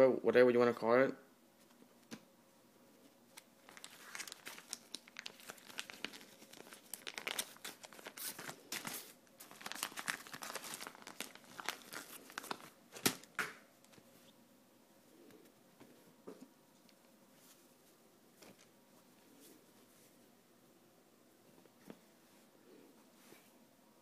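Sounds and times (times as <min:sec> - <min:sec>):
plastic bag crinkling: 0:03.4 - 0:13.4
plastic bag snap: 0:13.0 - 0:13.6.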